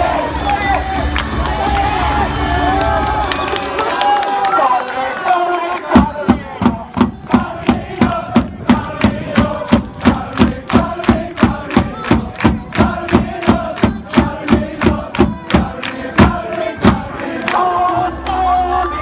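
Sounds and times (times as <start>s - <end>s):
crowd chanting in unison: 0.0s - 0.6s, 4.6s - 19.0s
steady drum beat: 5.9s - 17.2s.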